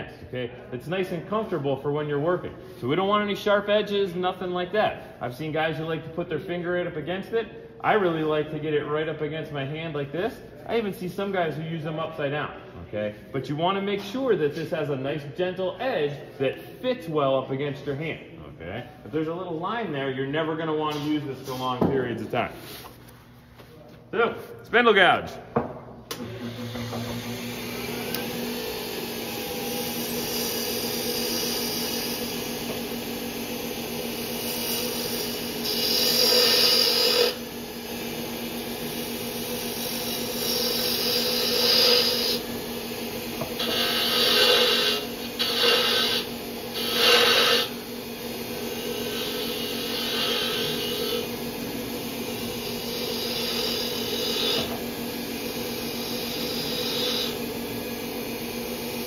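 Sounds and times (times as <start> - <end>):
wood lathe humming: 26.1 - 59.0
gouge cutting spinning wood: 26.2 - 59.0.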